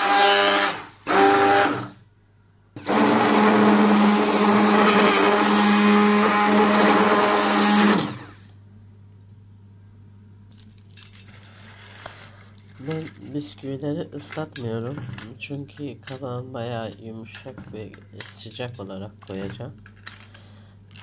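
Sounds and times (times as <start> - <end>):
stick blender running: 0.0 - 2.0, 2.8 - 8.5.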